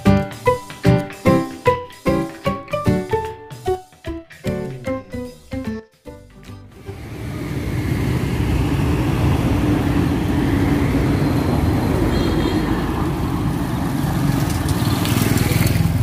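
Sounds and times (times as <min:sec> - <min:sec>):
motorbike engines: 0:06.8 - 0:16.0
road traffic rumble: 0:06.8 - 0:16.0.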